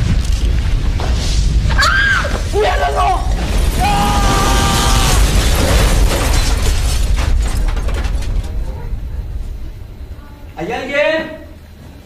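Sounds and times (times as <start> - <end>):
low rumbling and crashing: 0.0 - 12.0
long pitched wail: 3.8 - 5.2
sharp knocks and clatters: 5.1 - 9.1.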